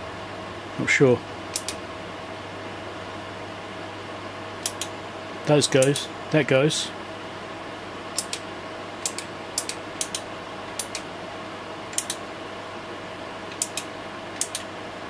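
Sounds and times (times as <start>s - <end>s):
cooling fan hum: 0.0s - 15.0s
pushbuttons clicking: 12.0s - 12.2s.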